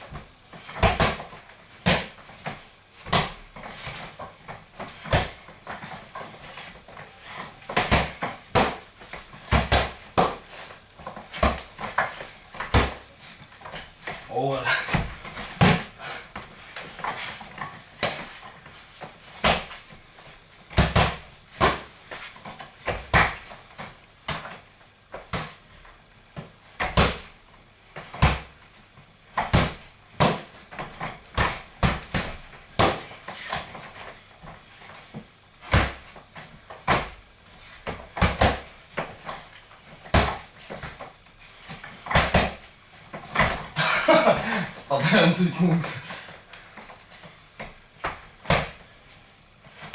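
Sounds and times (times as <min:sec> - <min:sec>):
punches smacking punch mitts: 0:00.8 - 0:02.2, 0:03.0 - 0:03.4, 0:07.7 - 0:08.8, 0:09.4 - 0:10.4, 0:11.3 - 0:13.0, 0:14.9 - 0:16.5, 0:19.4 - 0:19.8, 0:20.7 - 0:21.9, 0:26.8 - 0:27.3, 0:28.1 - 0:28.5, 0:29.4 - 0:33.7, 0:35.6 - 0:36.0, 0:37.8 - 0:39.2, 0:40.0 - 0:41.0, 0:42.0 - 0:42.6, 0:47.6 - 0:48.8.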